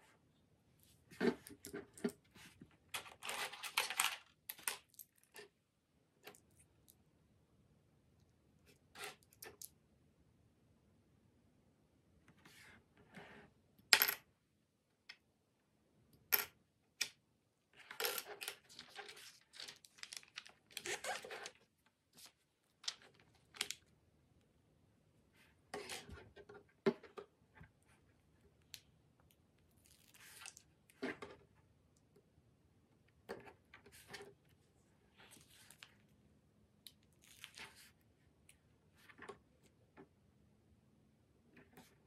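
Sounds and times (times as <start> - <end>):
paper rustling: 18.4 - 23.8.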